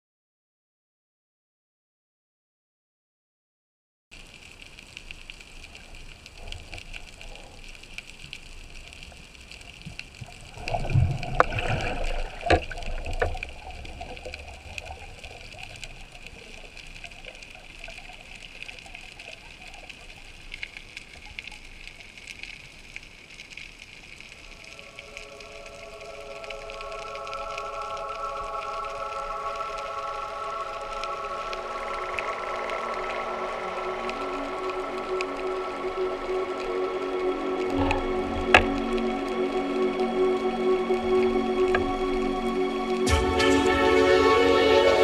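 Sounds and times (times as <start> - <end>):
water rushing and gurgling: 4.2 - 45.0
underwater hiss: 5.0 - 22.8, 23.9 - 45.0
music: 10.6 - 14.4, 24.6 - 45.0.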